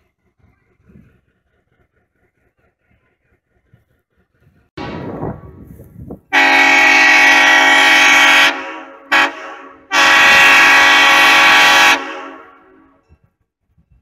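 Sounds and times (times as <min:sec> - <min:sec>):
locomotive air horn blasts: 0:06.3 - 0:13.1.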